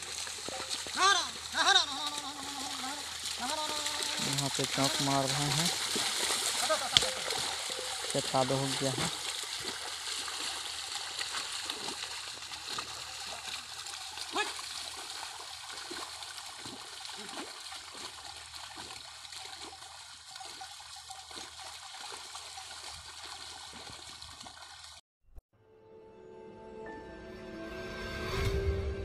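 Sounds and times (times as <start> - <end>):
water and mud splashing: 0.0 - 25.0.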